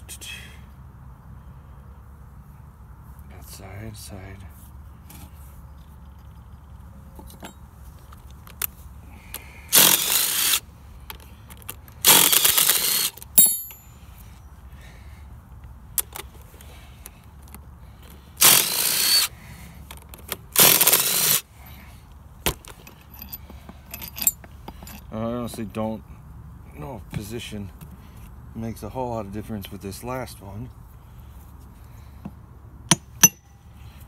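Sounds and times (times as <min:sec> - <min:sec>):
impact driver bursts: 0:09.7 - 0:10.6, 0:12.0 - 0:13.7, 0:18.4 - 0:19.3, 0:20.6 - 0:21.4
metallic clink of tools: 0:13.4 - 0:13.9.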